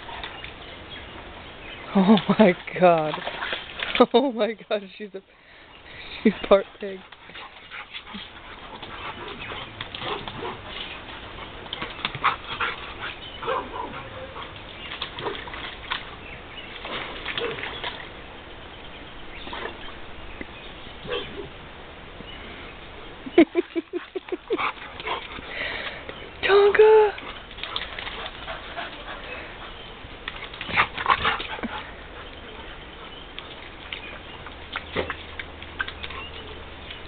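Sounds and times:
dogs scuffling: 6.5s - 18.1s.

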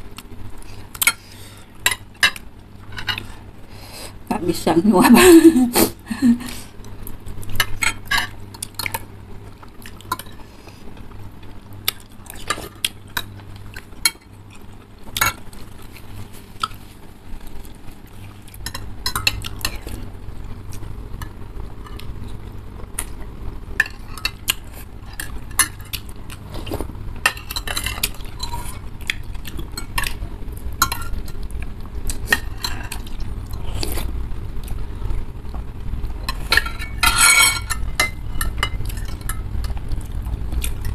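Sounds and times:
cutlery clinking on ceramic bowls: 30.8s - 31.4s, 36.3s - 39.4s.

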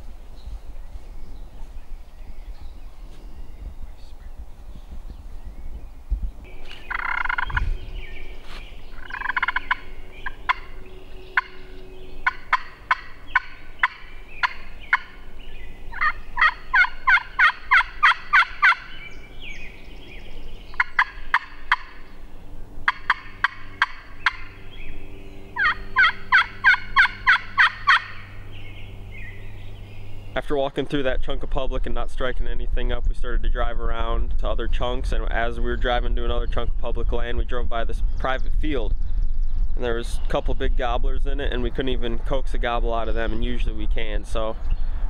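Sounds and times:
turkey call yelps: 6.8s - 7.7s, 8.9s - 15.3s, 15.9s - 19.1s, 20.7s - 22.0s, 22.8s - 24.6s, 25.6s - 28.3s.

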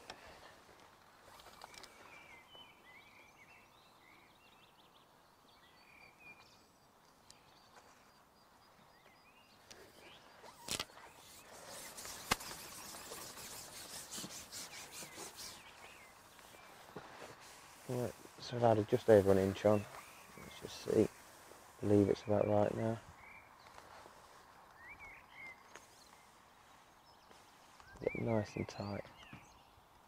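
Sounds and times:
faint bird chirps: 1.2s - 29.9s
sharp clicks of fishing tackle: 10.5s - 13.4s
quick rustling ticks: 10.6s - 18.4s.

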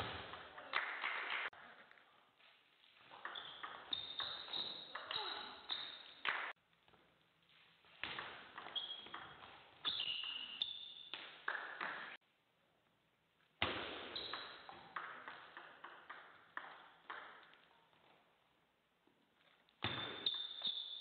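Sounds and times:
table tennis ball hits: 3.1s - 6.5s, 8.0s - 12.2s, 13.6s - 17.7s, 19.8s - 21.0s.

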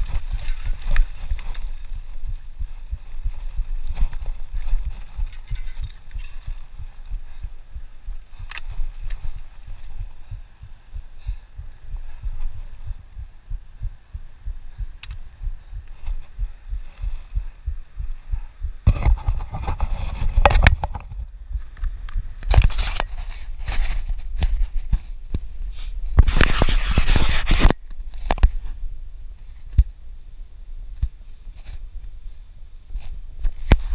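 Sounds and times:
wind buffeting microphone: 0.0s - 26.4s
rustling: 0.0s - 28.8s.

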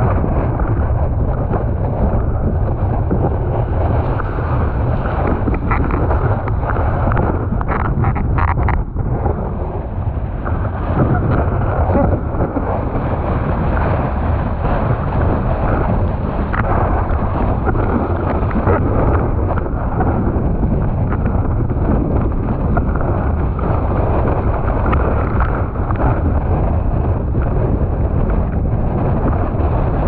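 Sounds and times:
wind buffeting microphone: 0.0s - 30.0s
water rushing: 3.5s - 8.7s.

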